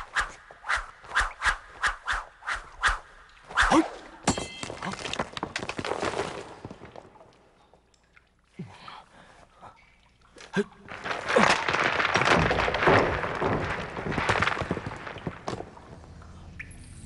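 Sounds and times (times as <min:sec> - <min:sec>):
stones crashing and tumbling: 0:04.3 - 0:07.3, 0:10.8 - 0:16.2.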